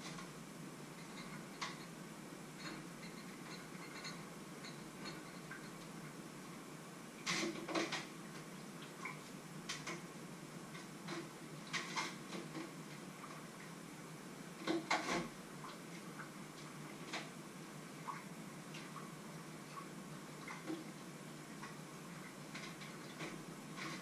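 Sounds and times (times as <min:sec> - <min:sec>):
dishes clinking in a sink: 0:02.6 - 0:05.9.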